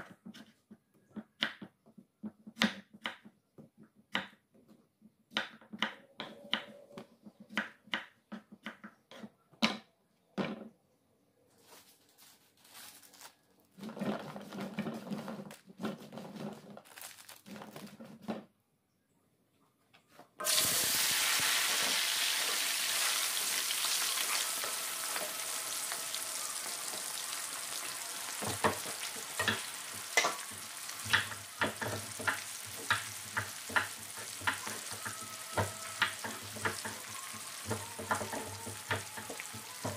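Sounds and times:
deep frying sizzle: 20.4s - 39.9s.

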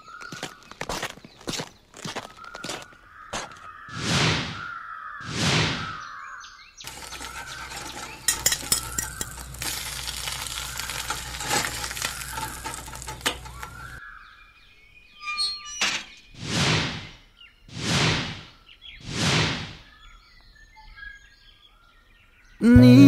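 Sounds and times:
bottles clinking: 6.9s - 14.0s.

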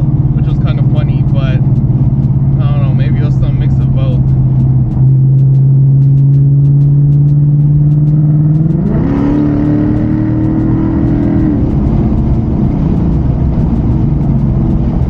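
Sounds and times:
car engine accelerating: 0.0s - 15.0s
road rumble: 0.0s - 15.0s.

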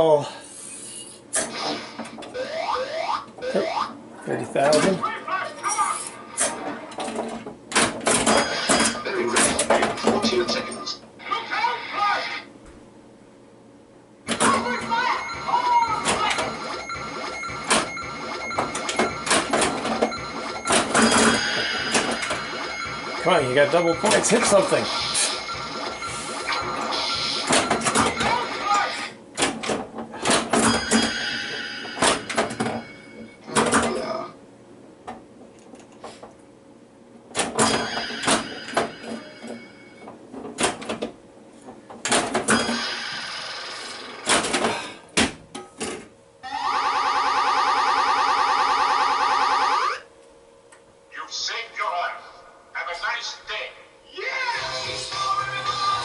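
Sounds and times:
electronic machine tones: 14.3s - 28.5s.

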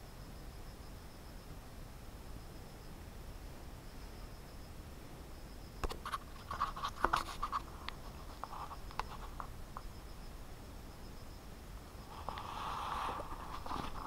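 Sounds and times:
faint steady hiss: 0.0s - 14.0s
scratchy rustling: 5.9s - 9.5s, 12.1s - 14.0s.

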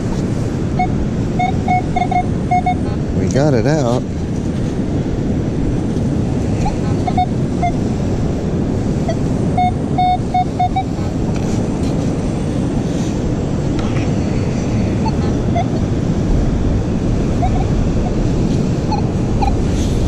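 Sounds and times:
surf rushing: 0.0s - 20.0s
wind: 0.0s - 20.0s
metal detector beeps: 0.8s - 3.0s, 6.6s - 7.8s, 9.0s - 11.1s, 15.0s - 15.8s, 17.4s - 18.2s, 18.9s - 19.7s.

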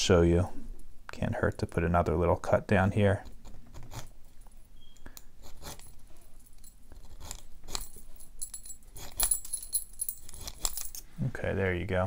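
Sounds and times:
keys jingling on chain: 5.6s - 11.0s.

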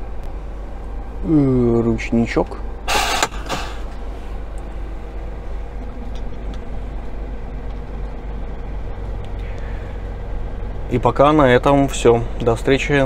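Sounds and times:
diesel engine idling: 0.0s - 13.0s
air brake hiss: 2.9s - 4.4s.

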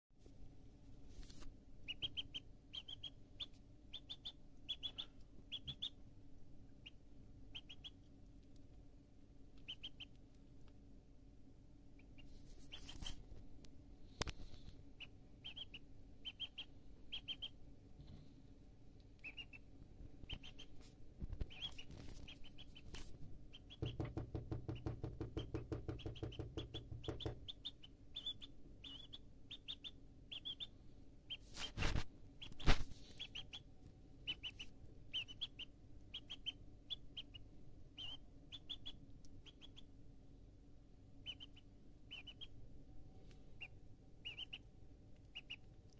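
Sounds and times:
duckling peeping: 1.2s - 8.8s, 9.5s - 10.7s, 11.9s - 13.2s, 14.1s - 18.3s, 19.0s - 40.0s, 41.2s - 42.6s, 43.2s - 45.9s
bill tapping on countertop: 23.8s - 27.4s
loud knocks: 23.8s - 27.4s.

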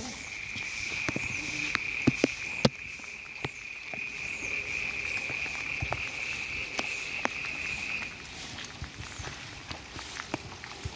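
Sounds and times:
insects chirring: 0.0s - 8.4s
light rain falling: 0.0s - 10.9s
sharp taps and ticks: 0.6s - 4.1s.

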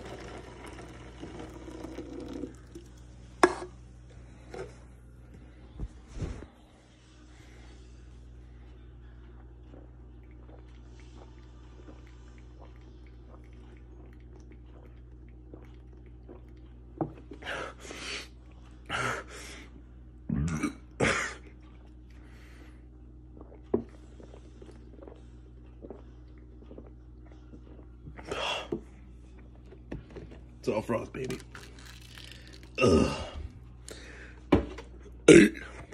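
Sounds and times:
man gulping milk: 0.0s - 3.1s, 9.2s - 17.6s, 23.3s - 35.9s
electric fan hum: 0.0s - 15.5s, 24.0s - 35.9s
man coughing and gasping: 20.4s - 21.4s, 35.3s - 35.8s.

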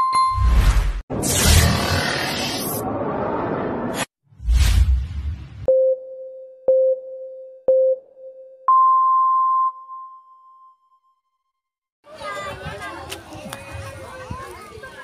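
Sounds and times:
whoosh: 0.6s - 5.7s
countdown beeps: 5.7s - 10.2s.

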